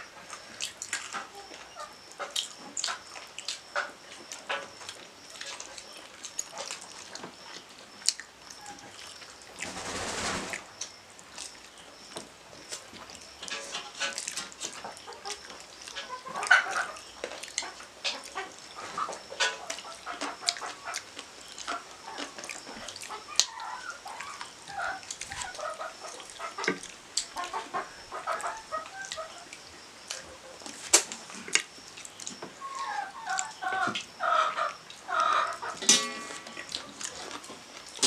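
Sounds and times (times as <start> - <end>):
wet chewing and lip-smacking: 2.3 - 8.3
fingers and bones clicking on plates: 12.1 - 29.3, 34.7 - 38.0.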